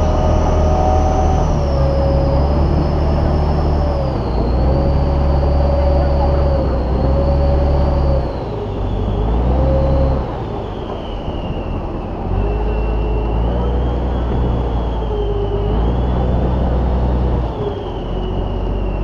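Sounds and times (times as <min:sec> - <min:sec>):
boat engine hum and whine: 0:00.0 - 0:19.0.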